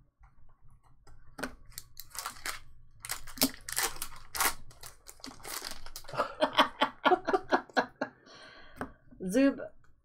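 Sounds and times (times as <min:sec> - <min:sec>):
card pack wrapper crinkling and tearing: 0:01.6 - 0:06.2.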